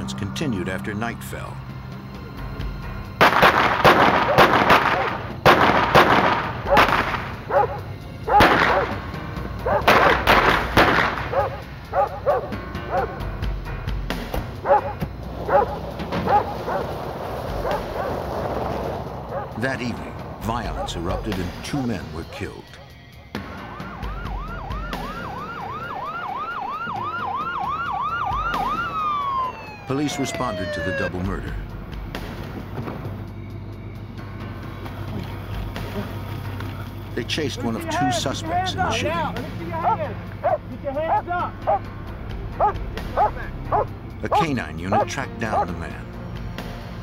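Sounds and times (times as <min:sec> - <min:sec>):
echoing gunshots: 0:03.2 - 0:07.6, 0:08.3 - 0:11.6
police siren yelping and wailing: 0:04.1 - 0:13.3, 0:14.6 - 0:16.9, 0:19.3 - 0:31.8, 0:37.4 - 0:41.9, 0:42.6 - 0:46.1
dog barking: 0:04.2 - 0:05.2, 0:06.6 - 0:06.9, 0:07.5 - 0:09.0, 0:09.6 - 0:10.2, 0:11.3 - 0:13.2, 0:14.6 - 0:16.9, 0:17.6 - 0:18.2, 0:19.3 - 0:19.6, 0:39.8 - 0:41.9, 0:42.6 - 0:45.8
slower siren tone: 0:23.4 - 0:31.1.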